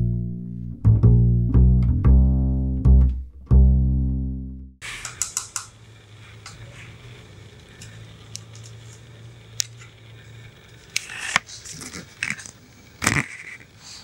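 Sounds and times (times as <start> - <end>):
plastic toy clicking on tile floor: 5.0 - 5.8.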